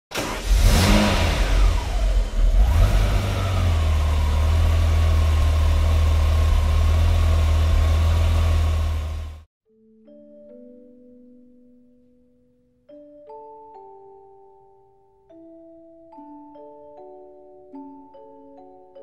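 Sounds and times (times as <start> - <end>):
vehicle engine revving and idling: 0.2 - 9.5.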